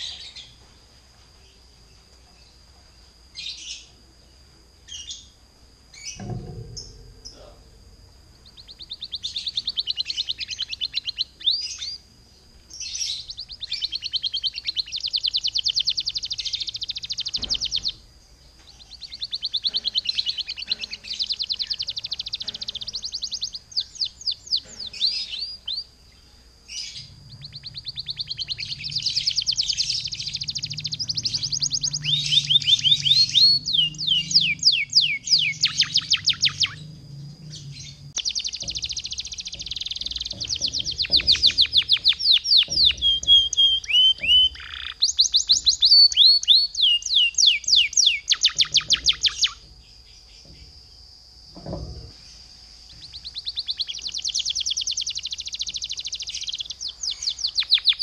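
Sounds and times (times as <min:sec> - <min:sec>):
canary singing trills: 0:00.0 - 0:00.7, 0:01.4 - 0:58.0.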